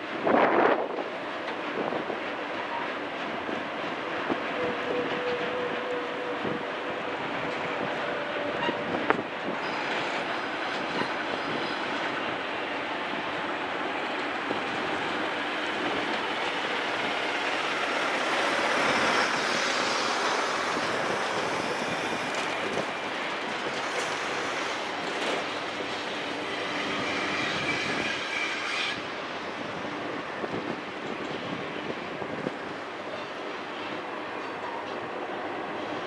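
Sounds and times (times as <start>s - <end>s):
train wheels rumbling on rails: 0.0s - 36.0s
high wheel squeal: 7.2s - 11.9s, 26.1s - 29.1s.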